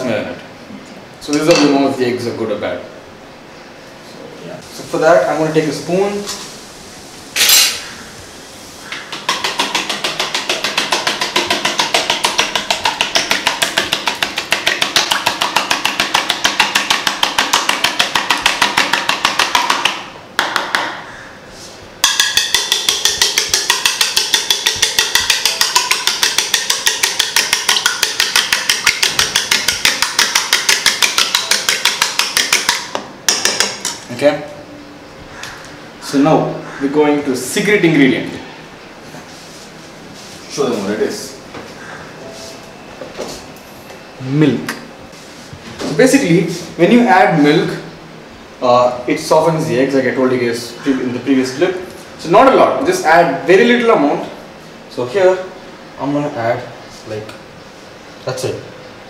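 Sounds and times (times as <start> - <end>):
spoon whisking eggs in bowl: 9.1 - 19.9, 22.0 - 34.0.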